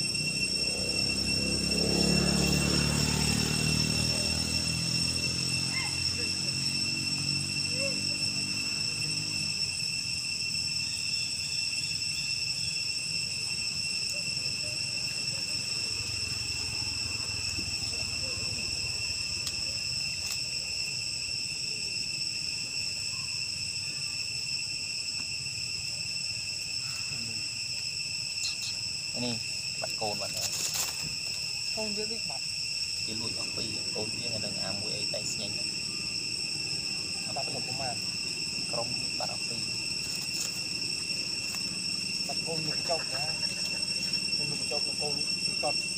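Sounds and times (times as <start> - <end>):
insect chorus drone: 0.0 - 45.9.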